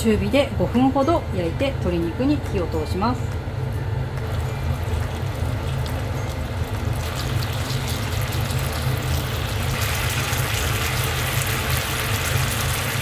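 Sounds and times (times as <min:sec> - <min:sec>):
steady low hum: 0:00.0 - 0:13.0
chicken sizzling in a frying pan: 0:05.0 - 0:13.0.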